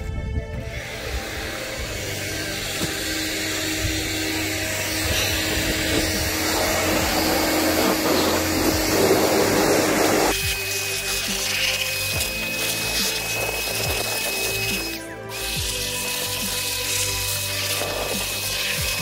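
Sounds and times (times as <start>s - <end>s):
electric air blower running: 0.6s - 19.0s.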